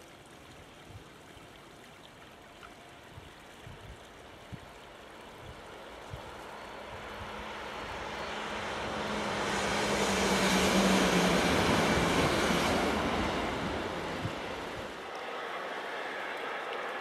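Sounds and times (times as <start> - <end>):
low train hum: 4.1 - 17.0
train passing: 4.9 - 17.0.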